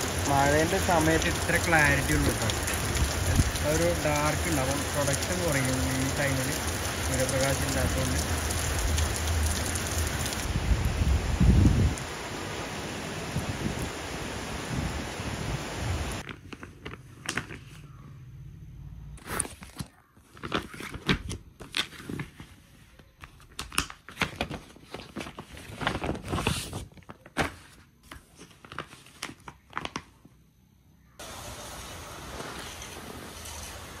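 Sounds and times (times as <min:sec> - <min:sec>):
steady rain: 0:00.0 - 0:16.2, 0:31.2 - 0:34.0
plastic folder crinkling: 0:16.2 - 0:17.8, 0:19.2 - 0:30.3
paper rustling: 0:16.2 - 0:17.9, 0:19.2 - 0:30.1.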